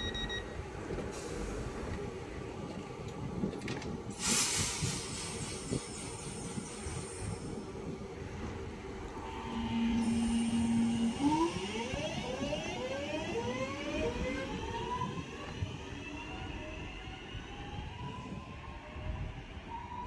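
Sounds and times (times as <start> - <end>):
electric train motors whining: 8.6 - 18.4.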